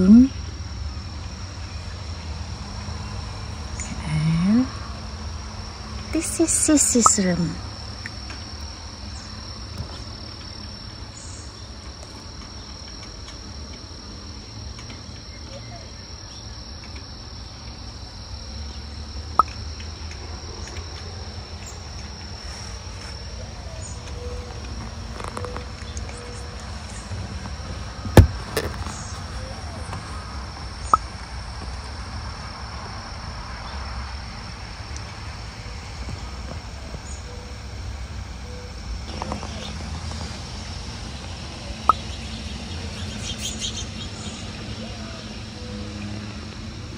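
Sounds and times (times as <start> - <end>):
sharp knock: 28.2 - 28.7.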